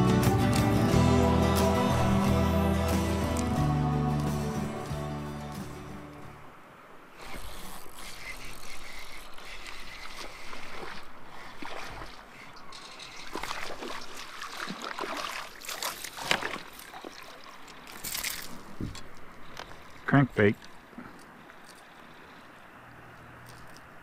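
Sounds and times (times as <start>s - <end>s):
water splashing and trickling: 0.5s - 24.0s.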